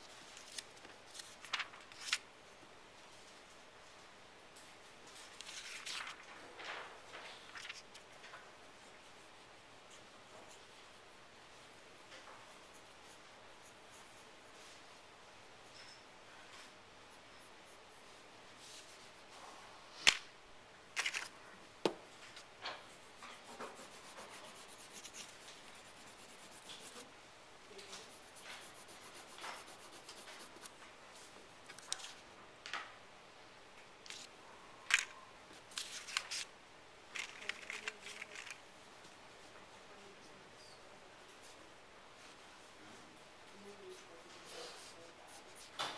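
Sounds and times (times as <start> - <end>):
pencil scratching on paper: 22.9 - 27.1, 27.8 - 30.7.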